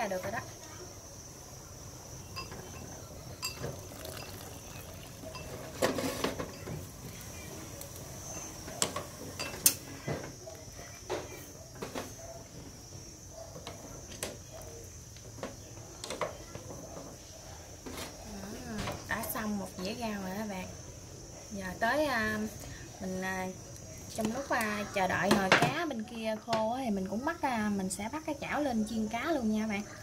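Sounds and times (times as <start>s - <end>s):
crickets chirring: 0.0s - 30.0s
utensils clinking on metal pot: 2.4s - 6.9s, 8.7s - 9.8s.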